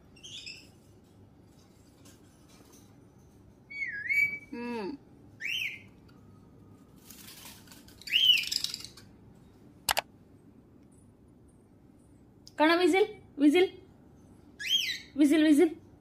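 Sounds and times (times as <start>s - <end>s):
sharp click: 9.9s - 10.1s.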